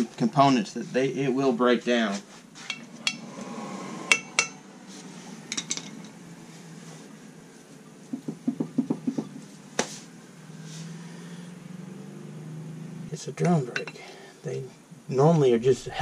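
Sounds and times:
dull metal knocks: 8.1 - 9.5.

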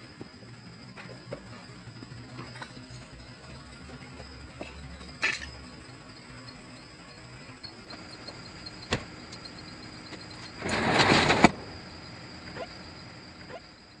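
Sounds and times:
garage door rolling down tracks: 6.6 - 13.2.

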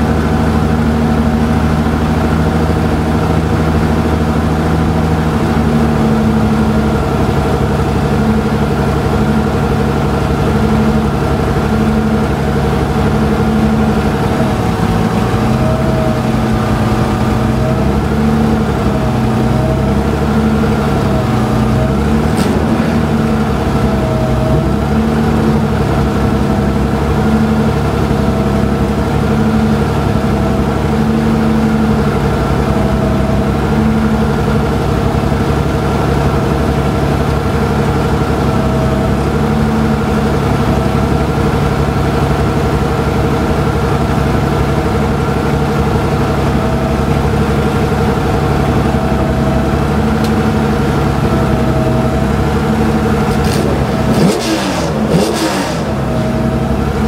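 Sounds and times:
car engine idling: 0.0 - 57.0
sharp knocks: 22.2 - 23.6.

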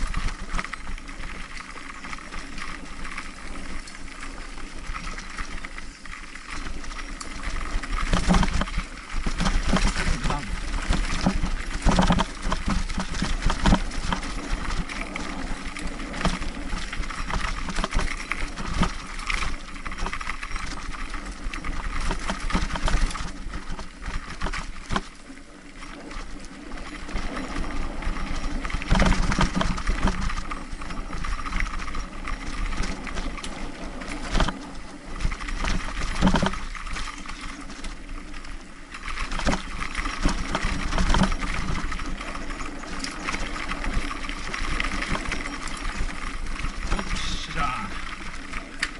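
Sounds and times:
bike rattling on dirt trail: 0.0 - 48.9.

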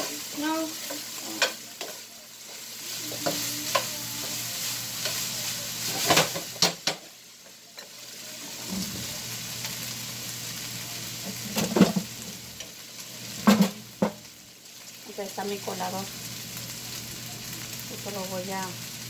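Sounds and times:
spoon scraping and knocking pan: 0.0 - 4.4
meat sizzling in a frying pan: 0.0 - 19.0.

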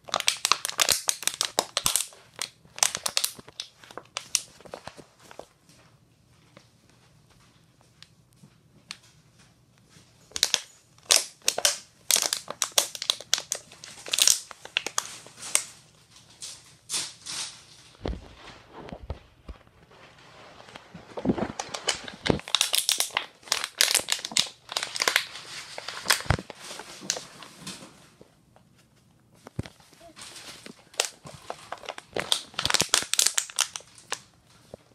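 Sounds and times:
plastic bottle crinkling: 0.0 - 5.5, 10.3 - 27.8, 29.4 - 34.9.

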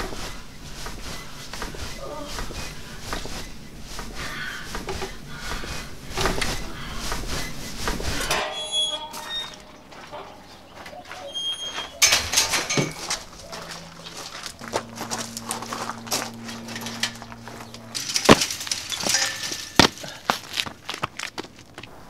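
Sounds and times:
clothes rustling: 0.0 - 21.8
footsteps: 0.0 - 22.0
bird chirps: 8.5 - 18.0.

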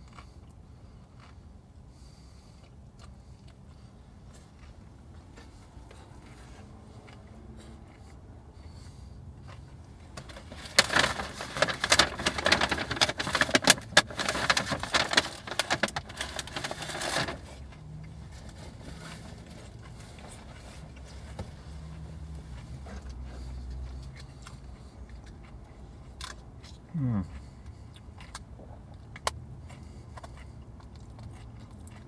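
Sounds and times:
takeout packaging crinkling: 10.1 - 17.7.

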